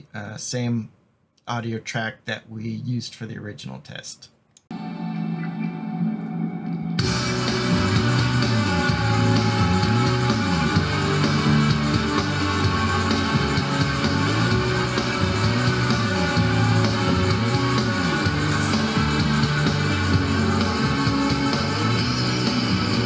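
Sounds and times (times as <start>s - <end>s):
music with guitar and bass line: 5.2s - 23.0s.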